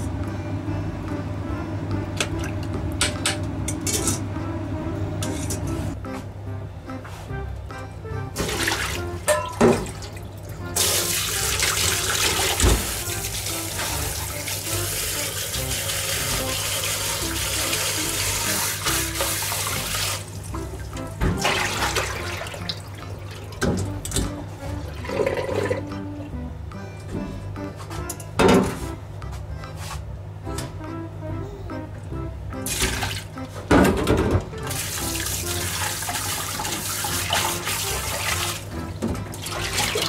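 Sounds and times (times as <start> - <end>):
background music: 0.0 - 40.0
water splashes: 8.4 - 10.2, 21.3 - 23.6, 34.7 - 38.7, 39.4 - 40.0
tap water running into sink: 10.8 - 24.3, 25.0 - 25.9, 32.7 - 33.3, 34.6 - 40.0.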